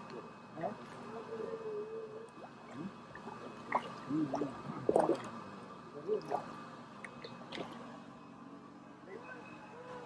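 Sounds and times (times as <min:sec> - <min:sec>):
short wet splashes: 0:02.4 - 0:05.4, 0:06.2 - 0:08.0
water dripping from net: 0:06.3 - 0:07.9.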